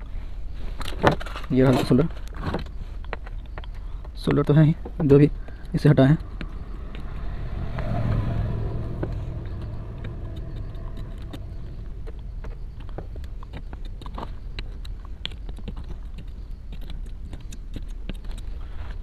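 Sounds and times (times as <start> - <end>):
low background rumble: 4.0 - 16.6.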